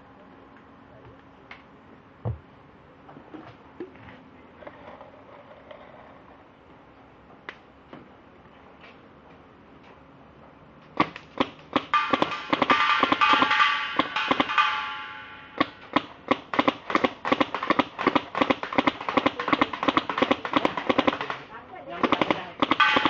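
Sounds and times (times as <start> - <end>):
paintball gun firing: 11.0 - 14.9, 15.6 - 23.0.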